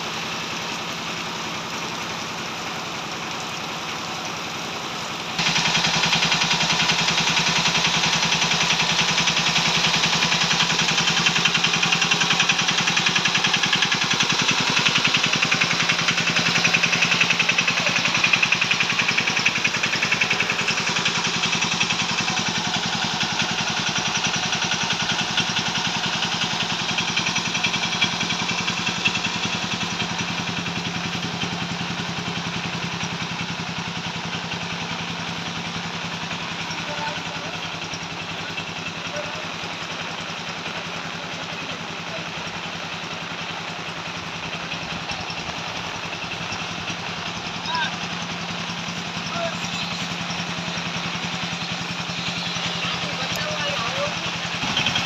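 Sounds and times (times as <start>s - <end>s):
tractor diesel engine idling: 0.0s - 55.0s
rain hiss: 3.3s - 31.0s, 39.4s - 47.4s.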